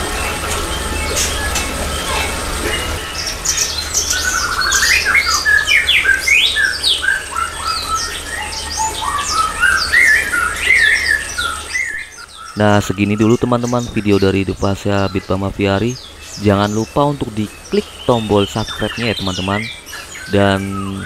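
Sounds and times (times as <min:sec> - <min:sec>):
aviary birds chirping and squawking: 0:00.0 - 0:21.0
low steady hum: 0:00.0 - 0:21.0.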